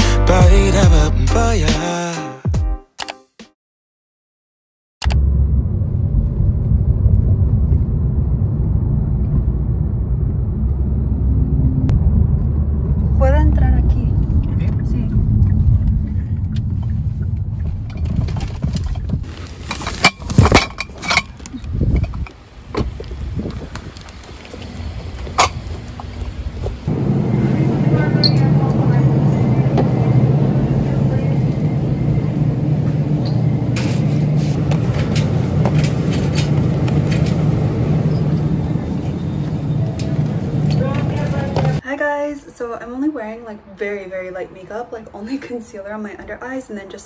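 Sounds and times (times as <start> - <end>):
low rumble inside car: 5.0 - 19.2, 26.5 - 35.8.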